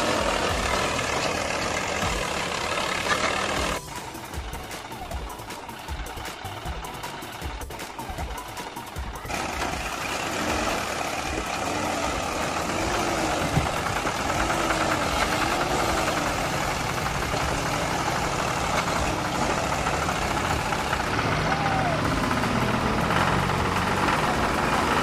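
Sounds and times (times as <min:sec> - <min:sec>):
toy tractor electric motors running: 0:00.0 - 0:03.9, 0:07.1 - 0:25.0.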